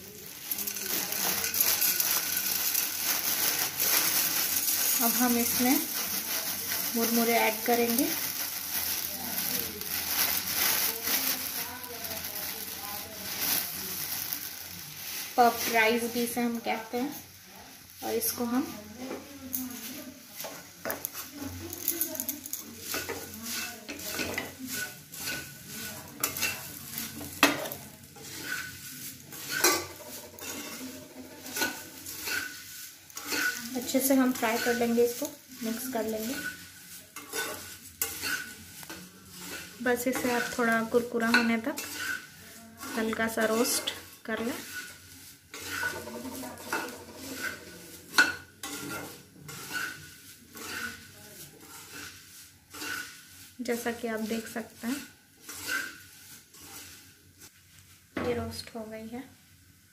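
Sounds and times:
rice grains rustling: 0:00.0 - 0:57.8
spatula scraping and knocking pan: 0:22.6 - 0:57.5.

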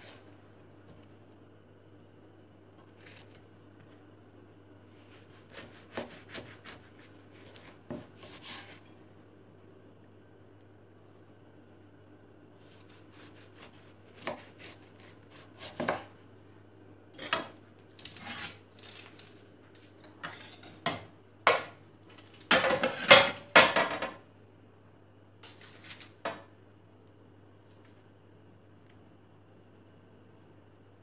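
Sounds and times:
knife cutting on wooden board: 0:05.0 - 0:08.9.

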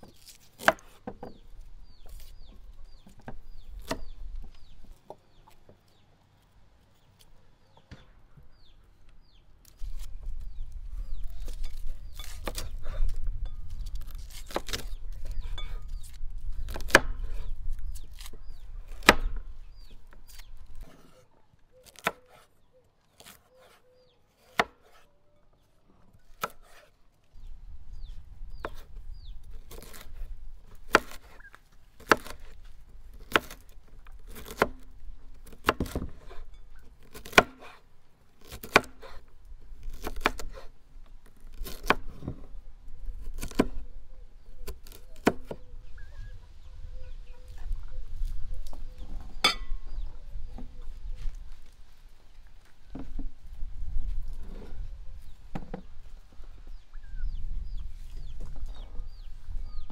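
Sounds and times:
chopping on wood: 0:38.5 - 0:39.2.

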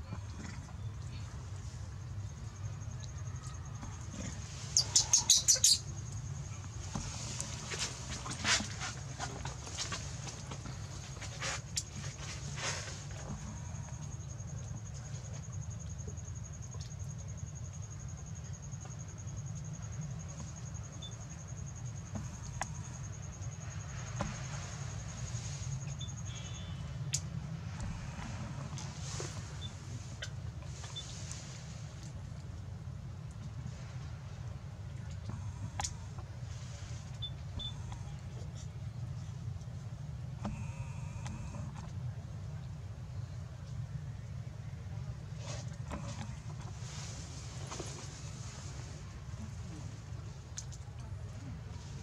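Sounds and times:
insect trilling: 0:02.6 - 0:06.3
baby monkey squealing: 0:04.8 - 0:05.8.

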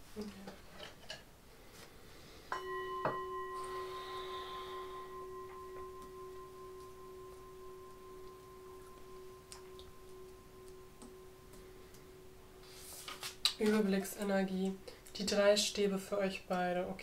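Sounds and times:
bell-like metal tone ringing: 0:02.5 - 0:14.7.

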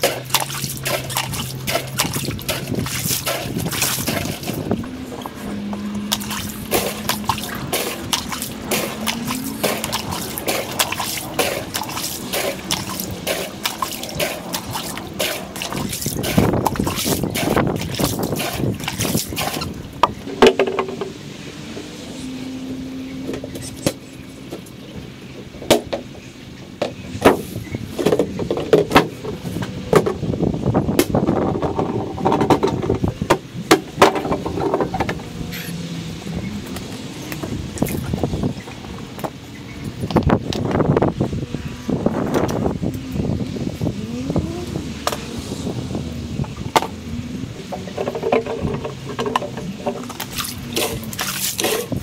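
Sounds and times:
water trickling through hose: 0:00.0 - 0:20.2, 0:42.2 - 0:52.0.

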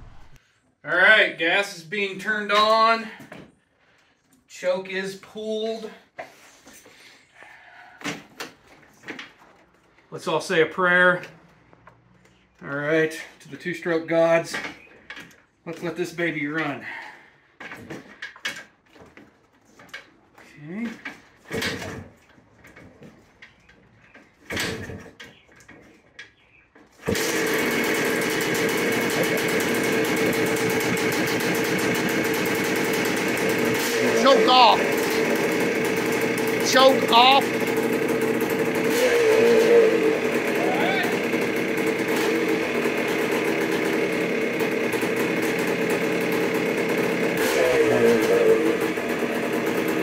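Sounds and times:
motorcycle kick-start: 0:20.9 - 0:25.8, 0:26.9 - 0:50.0
two-stroke engine running: 0:27.0 - 0:50.0.

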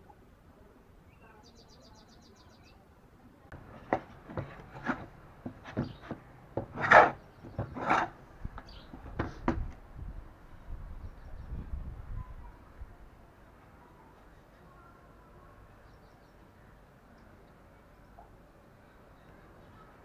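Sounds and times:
wooden mallet knocking on wood: 0:03.6 - 0:08.0, 0:09.1 - 0:09.7.

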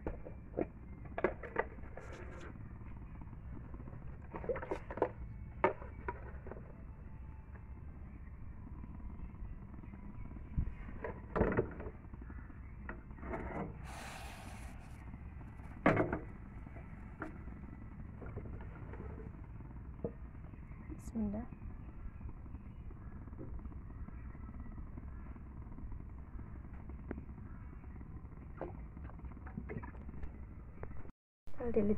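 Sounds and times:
gas hiss: 0:13.8 - 0:15.0.

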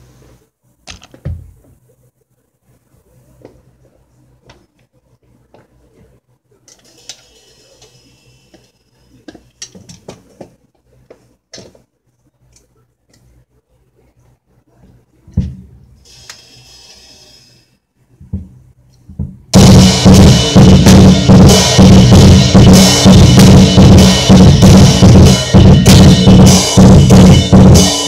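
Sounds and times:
cymbal ringing: 0:16.0 - 0:17.8, 0:19.6 - 0:28.0
drum kit knocks and clinks: 0:18.2 - 0:28.0
heavy low drum hit: 0:19.2 - 0:28.0.

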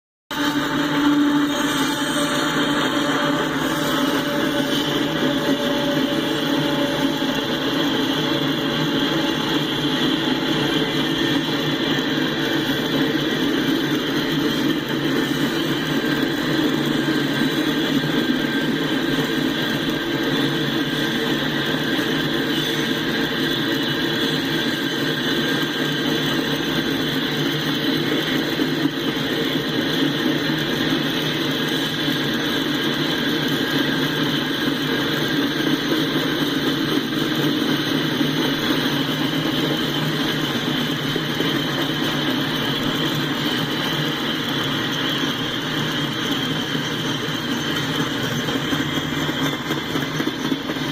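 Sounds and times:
train wheels on rail: 0:00.3 - 0:50.9.

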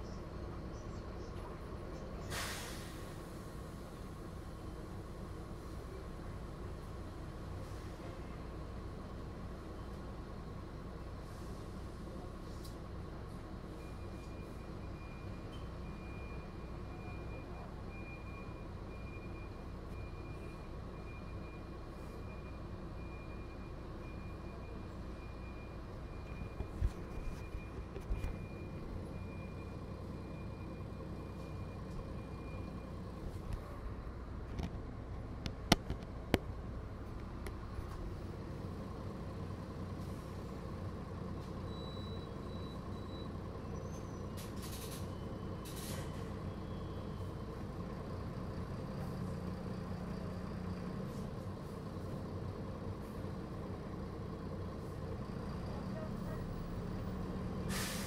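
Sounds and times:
bus diesel engine running: 0:00.0 - 0:58.0
short hisses: 0:02.2 - 0:03.2, 0:57.7 - 0:58.0.

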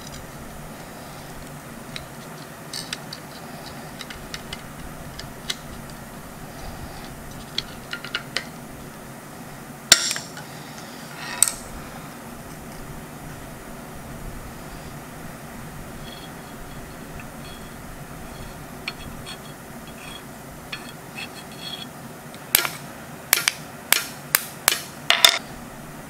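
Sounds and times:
sharp metal clanks: 0:09.9 - 0:10.4.

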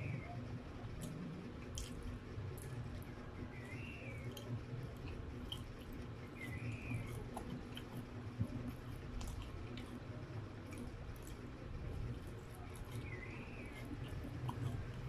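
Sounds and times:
close chewing and mouth sounds: 0:00.0 - 0:15.0
low steady hum: 0:00.0 - 0:15.0.

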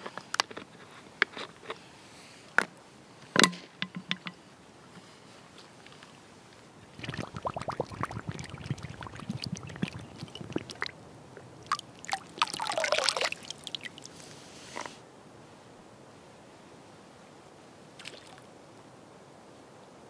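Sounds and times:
water pouch gurgling underwater: 0:06.8 - 0:14.2
water splashing: 0:06.9 - 0:11.0, 0:11.6 - 0:14.4, 0:18.0 - 0:18.4.

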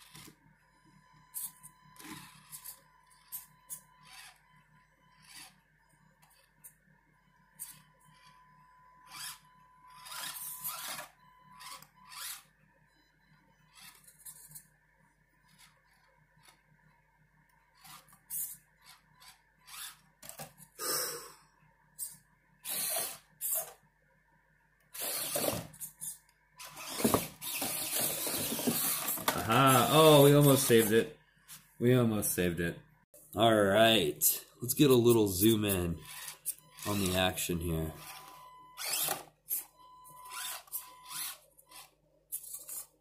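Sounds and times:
small electric motor whining: 0:00.0 - 0:06.8, 0:07.6 - 0:12.6, 0:13.3 - 0:14.7, 0:15.3 - 0:20.8, 0:22.0 - 0:23.8, 0:24.9 - 0:31.1, 0:35.4 - 0:43.0.

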